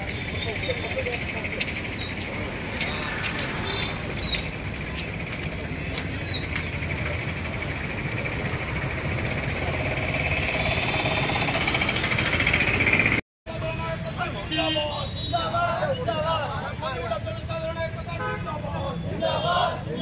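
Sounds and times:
street traffic noise: 0.0s - 20.0s
vehicle engine running: 6.6s - 13.2s.

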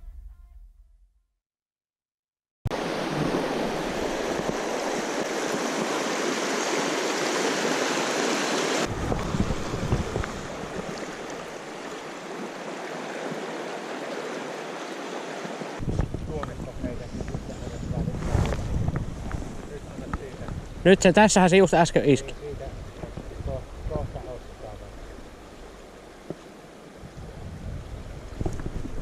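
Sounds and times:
river rapids rushing over rocks: 2.8s - 9.0s, 10.4s - 15.8s.

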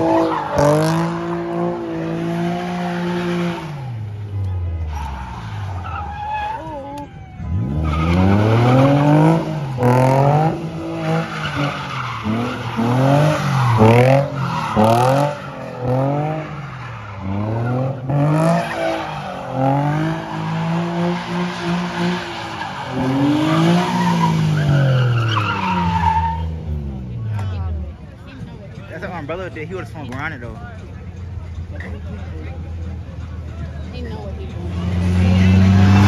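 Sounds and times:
car engine revving: 0.0s - 6.8s, 7.4s - 28.0s, 34.4s - 36.0s
tyres squealing on asphalt: 0.0s - 27.5s.

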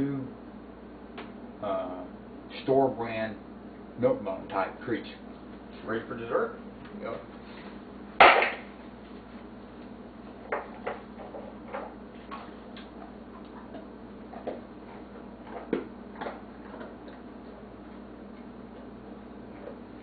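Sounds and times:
dog crunching hard biscuits: 10.8s - 17.9s.

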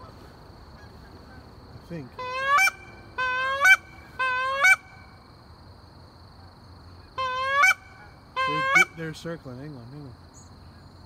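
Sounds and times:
goose call honks: 2.2s - 5.0s, 7.2s - 9.2s.

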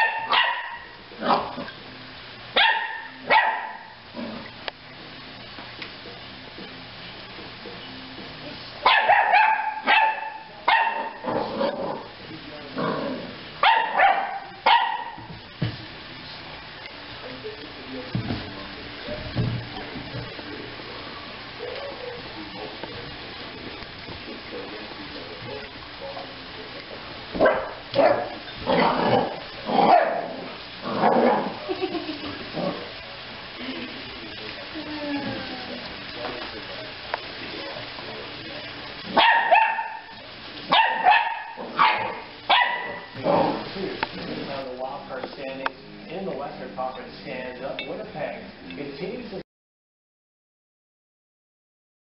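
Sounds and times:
puppy yapping: 0.0s - 1.5s, 2.6s - 4.0s, 8.8s - 11.2s, 13.6s - 15.3s, 39.1s - 43.2s
dog barking: 0.0s - 1.6s, 2.6s - 4.0s, 8.8s - 11.2s, 13.6s - 15.3s, 27.4s - 28.9s, 29.8s - 30.4s, 39.1s - 40.1s, 40.7s - 43.2s.

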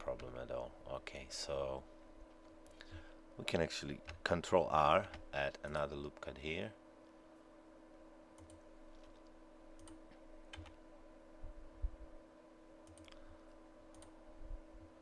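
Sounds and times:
electrical hum: 0.0s - 15.0s
computer mouse clicks: 8.4s - 10.8s, 12.8s - 13.2s, 13.9s - 14.2s
keyboard key presses: 9.8s - 10.8s.

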